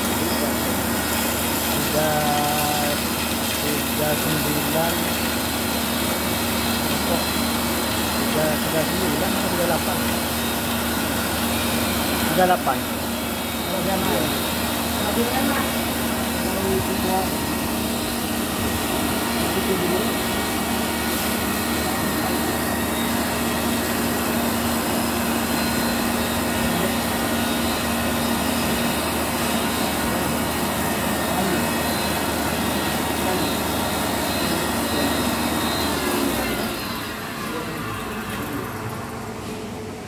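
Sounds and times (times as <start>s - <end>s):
coffee machine hissing and humming: 0.0s - 40.0s.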